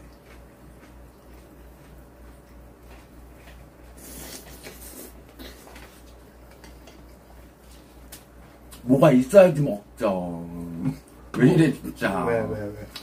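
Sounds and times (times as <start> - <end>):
chewing: 0.0 - 8.8
steady low hum: 0.0 - 13.0.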